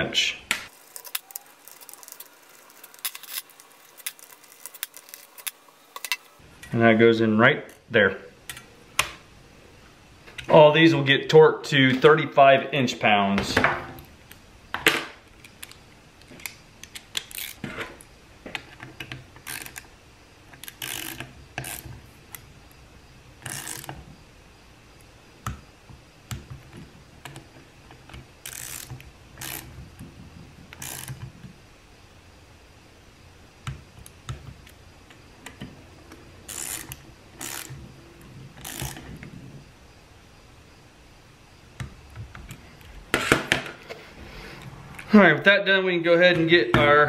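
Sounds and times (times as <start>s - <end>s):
hand ratchet clicking: 16.4s - 17.6s, 19.4s - 19.9s, 20.6s - 21.9s, 23.4s - 24.0s, 28.4s - 29.7s, 30.7s - 31.2s, 36.5s - 37.8s, 38.6s - 39.1s.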